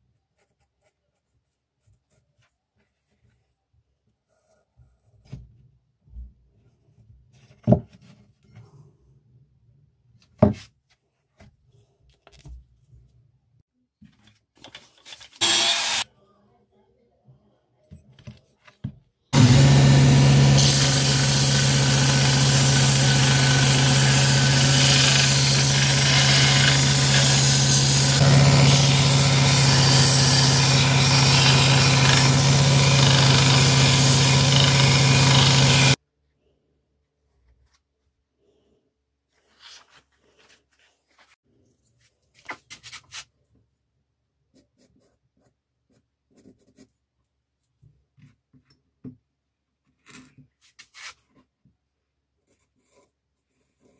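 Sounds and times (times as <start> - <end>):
belt sander grinding steel: 15.4 - 16.0, 19.4 - 36.0.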